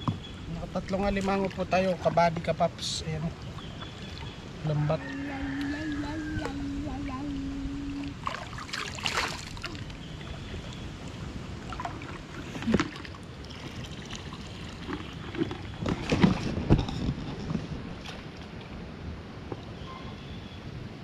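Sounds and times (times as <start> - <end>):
water sloshing around waders: 0.2 - 18.8
loud water splashes: 5.8 - 16.8.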